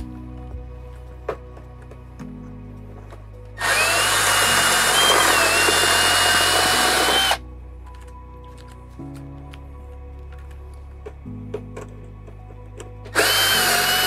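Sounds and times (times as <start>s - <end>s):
cordless drill whining: 3.6s - 7.4s, 13.1s - 14.0s.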